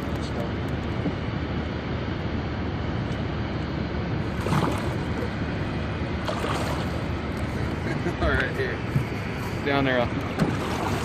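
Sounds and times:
water splashing: 0:04.2 - 0:05.3, 0:06.2 - 0:07.4, 0:10.2 - 0:11.0
steady rushing water: 0:04.2 - 0:07.8, 0:10.1 - 0:11.0.

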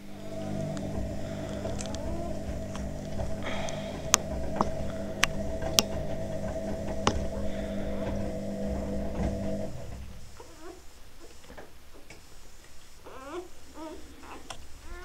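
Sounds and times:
steady hum: 0:00.0 - 0:11.1.

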